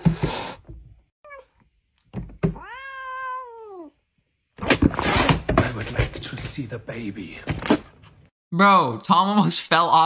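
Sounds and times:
cat meowing: 2.6 - 4.0.

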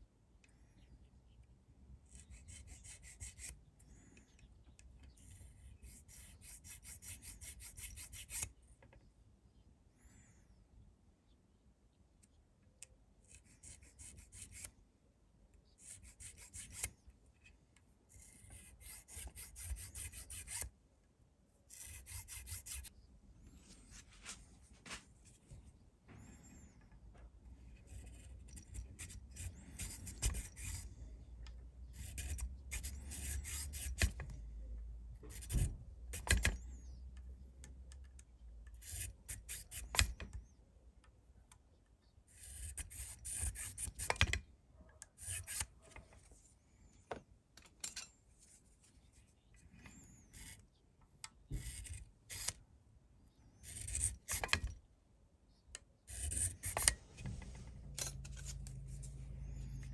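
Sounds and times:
files rasping in guitar nut slots: 27.7 - 30.9, 45.1 - 46.0, 56.1 - 59.9.

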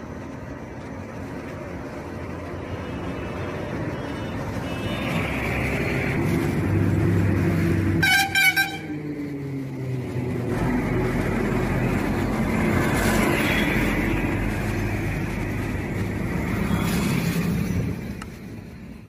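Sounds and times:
vehicle engine approaching: 0.0 - 19.0.

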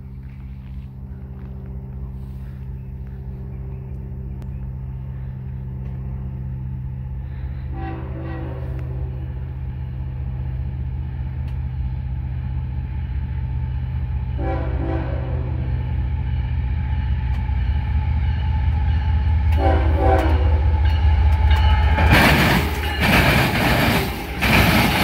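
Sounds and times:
diesel locomotive rumble: 0.0 - 25.0
locomotive air horn: 7.3 - 9.6, 14.3 - 16.0, 19.5 - 20.7.

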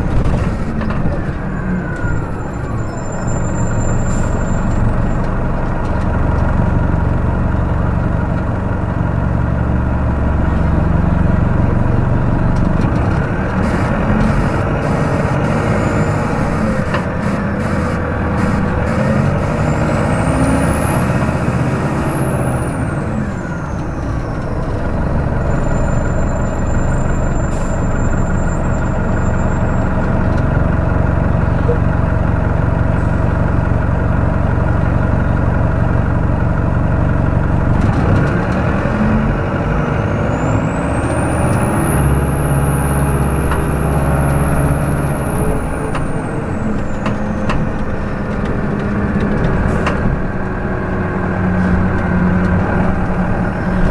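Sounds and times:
diesel bus engine running: 0.0 - 53.9
engine revving up: 13.2 - 23.1.

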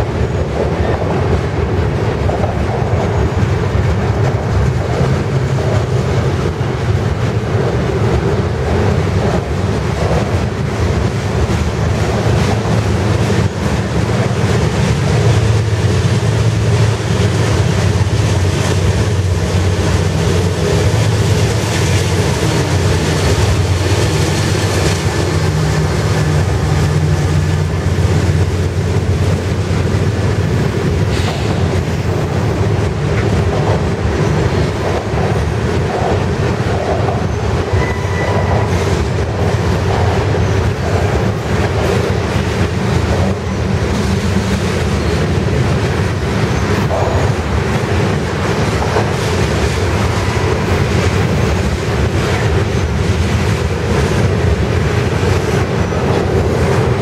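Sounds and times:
diesel locomotive engine drone: 0.0 - 57.0
train wheels rumbling and clacking: 0.0 - 57.0
faint wheel squeal: 37.7 - 38.6.

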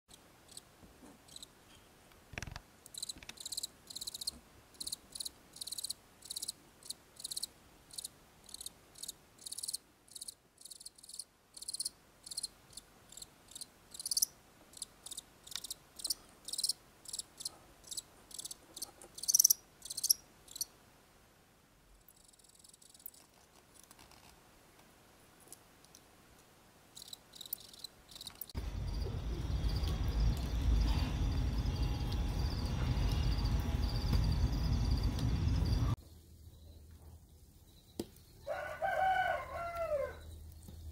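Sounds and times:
cricket chirping: 1.3 - 1.5, 2.9 - 20.7, 27.0 - 40.9.

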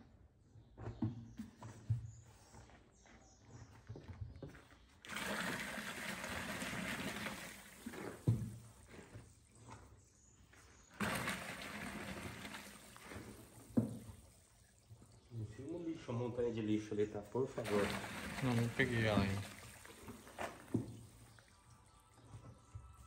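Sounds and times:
plaster sloshing in plastic tub: 5.0 - 8.9, 11.0 - 15.3, 17.6 - 21.5
thump against tub: 7.9 - 8.7, 11.0 - 14.2, 17.6 - 21.1.

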